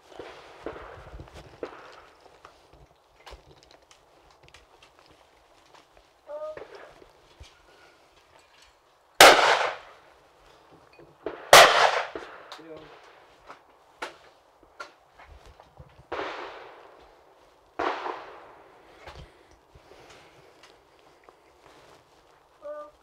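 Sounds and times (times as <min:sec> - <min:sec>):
distant gunshots: 0:00.2 - 0:02.2, 0:09.2 - 0:10.0, 0:11.2 - 0:13.2, 0:16.1 - 0:17.2, 0:17.8 - 0:19.0
shotgun shots: 0:09.2 - 0:10.0, 0:11.2 - 0:13.1, 0:16.1 - 0:17.0, 0:17.8 - 0:18.8.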